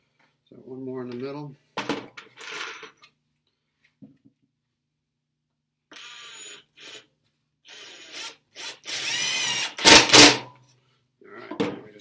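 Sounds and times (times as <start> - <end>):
screw driving rattling burst: 7.7 - 10.4.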